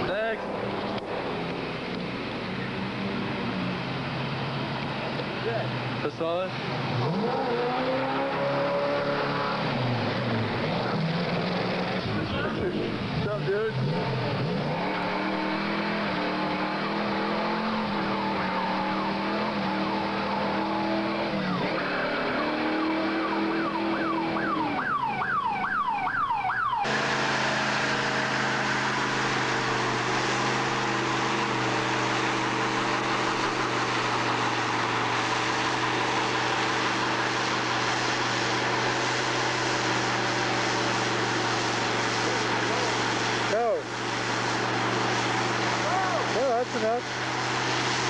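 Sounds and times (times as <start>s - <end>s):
car engine running: 0.0s - 48.0s
engine at high revs: 0.0s - 48.0s
tyres screeching: 7.0s - 24.8s.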